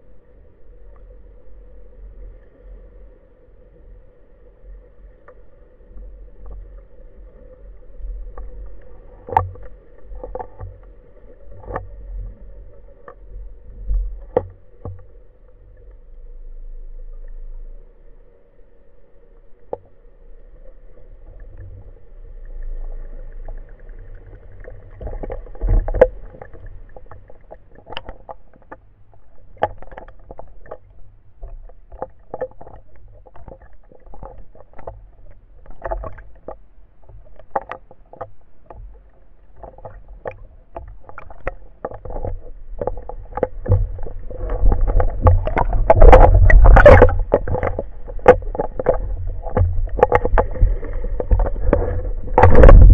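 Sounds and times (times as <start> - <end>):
low underwater rumble: 0.0 - 52.9
underwater clicks and knocks: 8.2 - 16.0, 19.6 - 20.0, 20.9 - 52.9.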